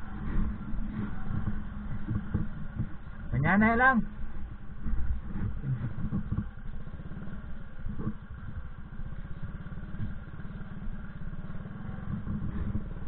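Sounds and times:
small motorcycle engine running: 0:00.0 - 0:13.0.

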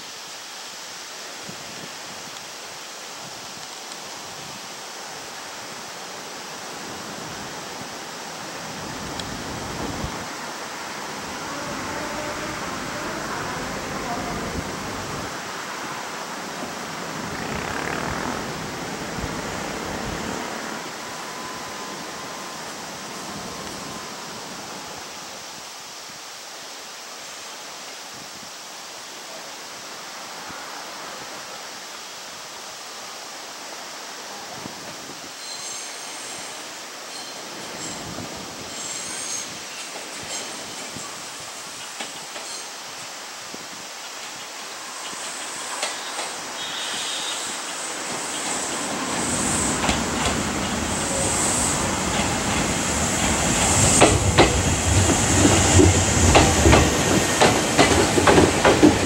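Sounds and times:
background hiss: 0:00.0 - 0:59.0
electric train rumbling: 0:00.9 - 0:25.8, 0:33.3 - 0:59.0.

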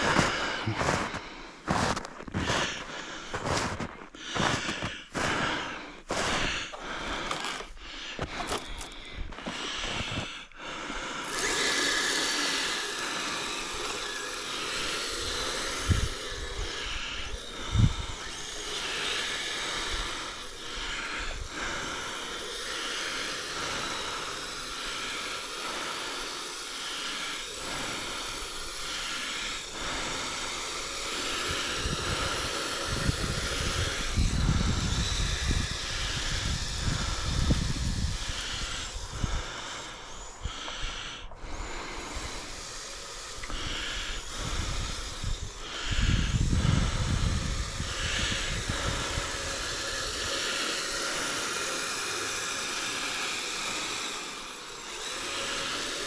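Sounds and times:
steady hiss: 0:00.0 - 0:01.6, 0:09.0 - 0:56.0
footsteps crunching in snow: 0:00.0 - 0:10.4.

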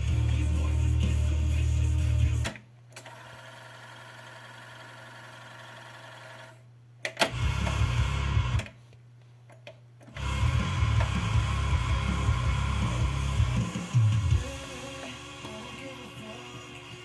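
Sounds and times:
cassette music playback: 0:00.0 - 0:03.3, 0:07.1 - 0:08.8, 0:10.0 - 0:17.0
tape rewinding whir: 0:10.1 - 0:17.0.

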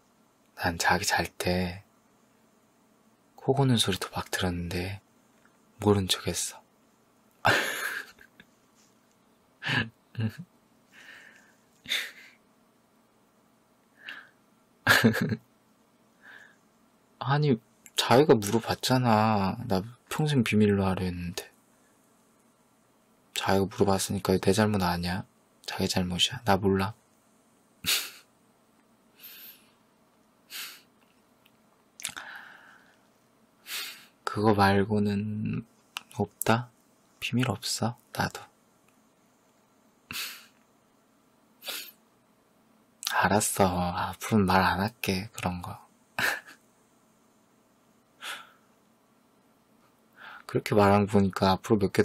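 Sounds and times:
man breathing and huffing: 0:10.9 - 0:12.4, 0:29.2 - 0:29.8, 0:30.5 - 0:30.9, 0:48.2 - 0:48.7.

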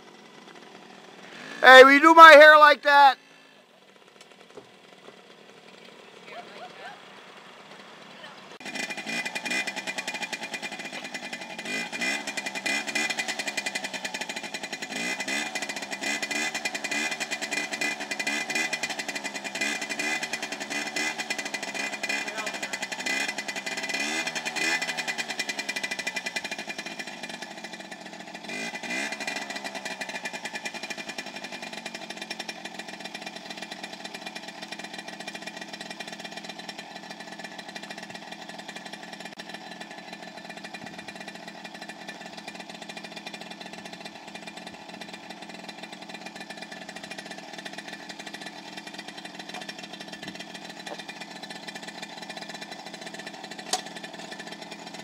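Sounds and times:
two-stroke engine revving and idling: 0:00.0 - 0:55.0
sharp click: 0:53.7 - 0:53.9.

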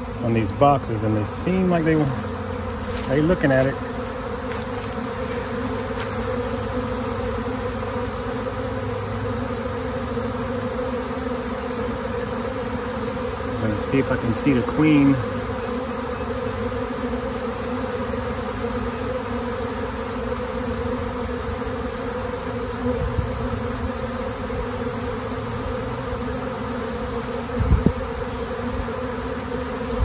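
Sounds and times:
bees buzzing: 0:00.0 - 0:30.0.

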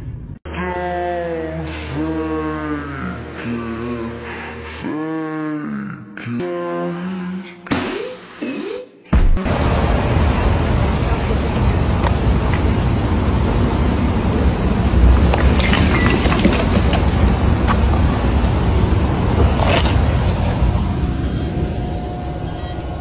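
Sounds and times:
city street traffic noise: 0:09.4 - 0:23.0.

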